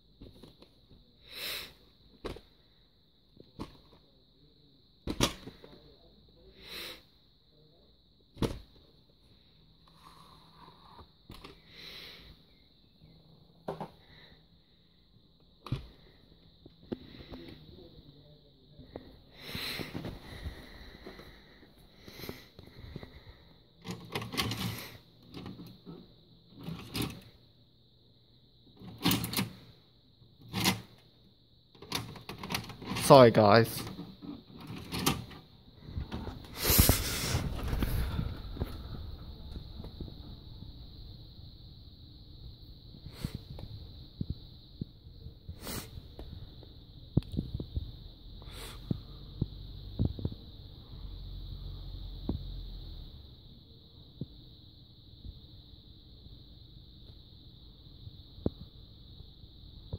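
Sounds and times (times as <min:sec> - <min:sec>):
plastic and mechanical clunks: 0:05.1 - 0:05.6.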